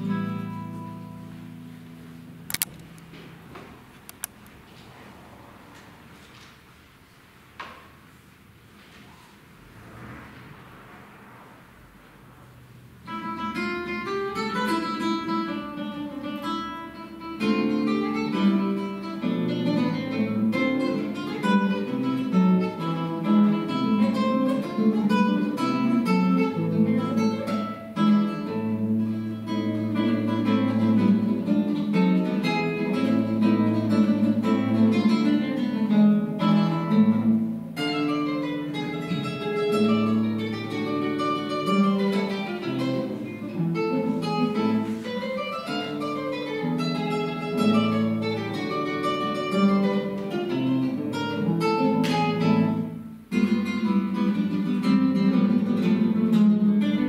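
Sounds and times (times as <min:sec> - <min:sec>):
classical guitar playing: 0:00.0 - 0:07.1, 0:08.0 - 0:57.0.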